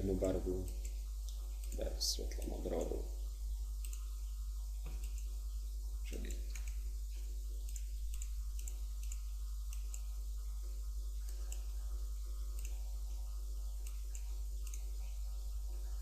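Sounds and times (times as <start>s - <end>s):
low electrical hum: 0.0s - 16.0s
computer mouse clicking: 0.6s - 3.0s, 3.8s - 4.2s, 4.8s - 5.4s, 6.1s - 10.1s, 11.2s - 11.8s, 12.4s - 15.3s.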